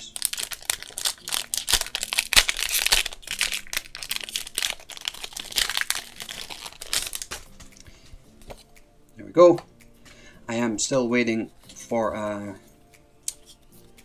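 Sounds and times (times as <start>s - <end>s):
foil wrapper crinkling and tearing: 0.0s - 7.6s.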